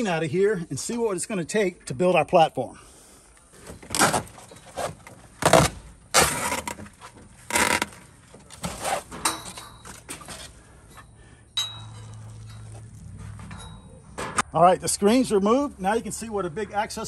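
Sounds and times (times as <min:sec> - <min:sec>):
scraping and rattling of screen: 0:03.6 - 0:11.1.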